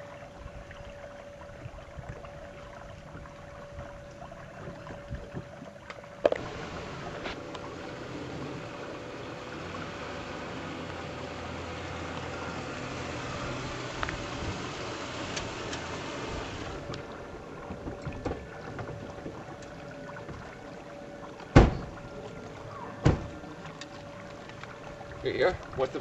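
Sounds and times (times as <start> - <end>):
car engine and tyres rolling: 4.6 - 26.0
car doors slamming: 21.5 - 22.0, 23.0 - 23.4.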